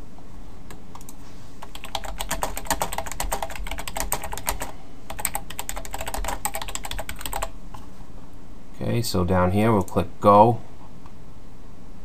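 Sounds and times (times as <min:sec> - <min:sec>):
computer keyboard typing: 0:01.0 - 0:07.5.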